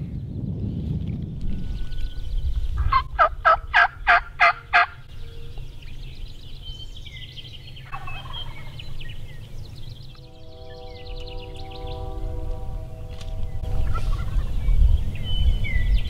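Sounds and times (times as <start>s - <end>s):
small birds chirping: 0.0s - 16.0s
turkey gobbling: 2.8s - 5.1s, 7.8s - 9.0s, 13.8s - 14.7s.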